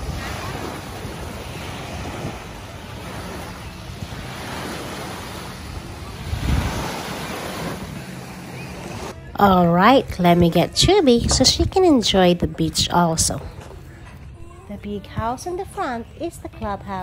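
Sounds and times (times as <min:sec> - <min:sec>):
waves breaking on sand: 0:00.0 - 0:09.2
wind noise on microphone: 0:00.0 - 0:09.3, 0:10.0 - 0:17.0.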